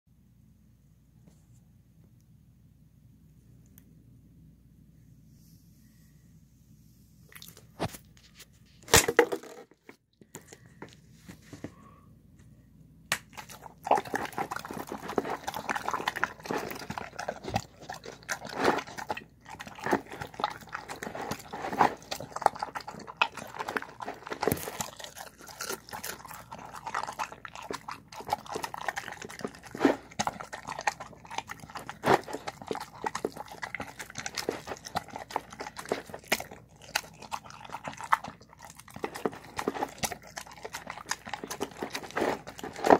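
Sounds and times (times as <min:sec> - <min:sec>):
dog chewing and smacking: 0:13.2 - 0:42.9.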